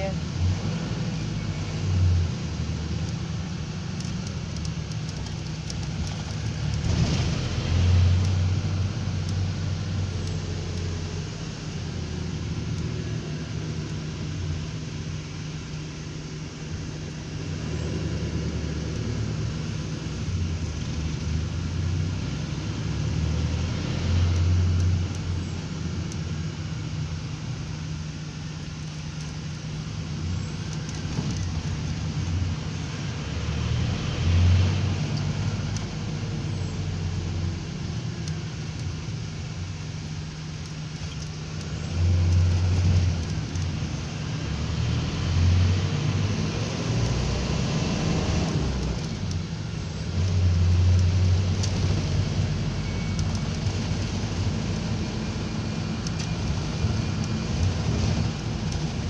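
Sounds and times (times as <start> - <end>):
road and engine noise: 0.0 - 59.0.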